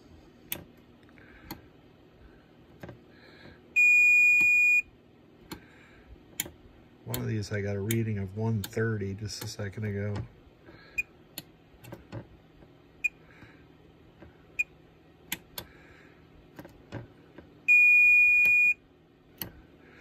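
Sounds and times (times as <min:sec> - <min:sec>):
multimeter chirps: 0:03.8 - 0:04.9, 0:17.7 - 0:18.8
multimeter steady beep: 0:03.8 - 0:04.9, 0:13.0 - 0:13.2, 0:17.7 - 0:18.8
probe tip clicking on pins: 0:06.3 - 0:10.3, 0:14.6 - 0:15.8, 0:19.4 - 0:19.6.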